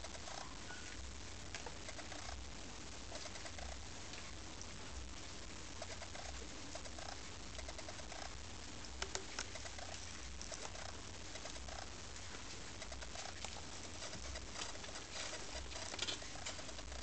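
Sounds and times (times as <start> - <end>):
cat purring: 0.0 - 4.5, 5.7 - 17.0
kittens tapping and scratching: 9.0 - 17.0.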